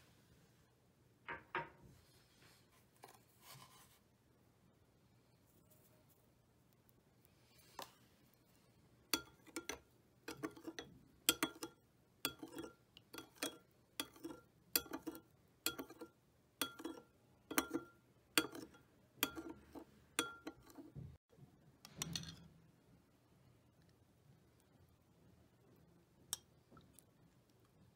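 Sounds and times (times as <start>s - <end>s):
metal spoon clinking glass bowl: 9.1s - 20.9s
spoon scraping bowl: 9.1s - 21.0s.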